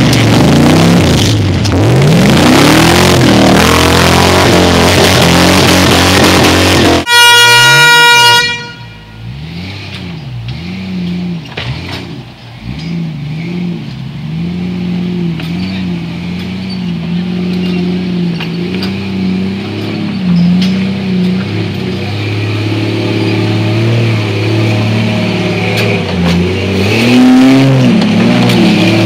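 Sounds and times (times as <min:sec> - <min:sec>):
off-road engine revving: 0:00.0 - 0:29.0
loud steady horn tone: 0:05.0 - 0:09.5.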